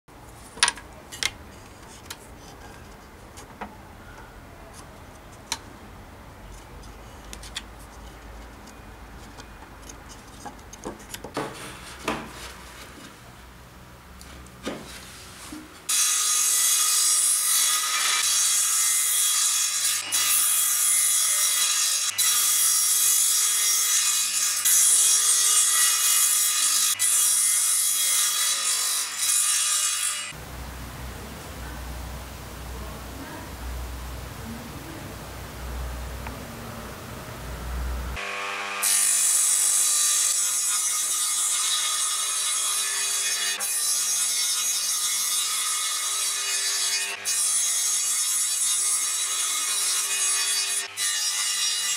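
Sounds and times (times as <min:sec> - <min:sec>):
table saw cutting wood: 0:15.9 - 0:30.4, 0:37.8 - 0:51.9.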